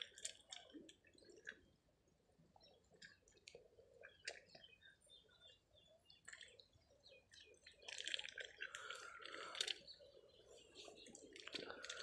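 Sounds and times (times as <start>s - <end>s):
duck dabbling in muddy water: 0.0s - 1.7s, 6.1s - 10.0s, 10.8s - 12.0s.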